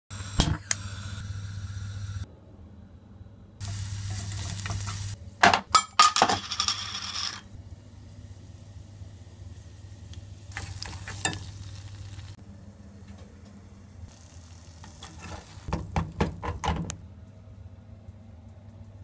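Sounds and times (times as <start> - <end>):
sauce sizzling in a saucepan: 3.6 - 5.2, 7.9 - 12.4, 14.0 - 15.8
steady low hum: 7.5 - 15.7.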